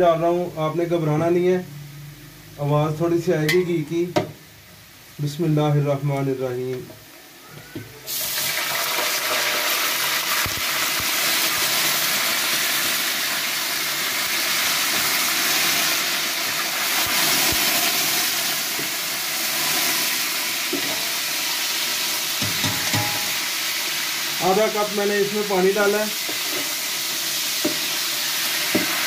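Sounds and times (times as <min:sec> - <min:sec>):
oil sizzling and hissing: 0:08.0 - 0:29.0.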